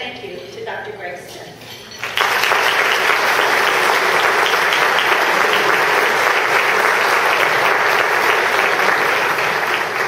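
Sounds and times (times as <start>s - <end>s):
audience applauding: 2.0s - 10.0s.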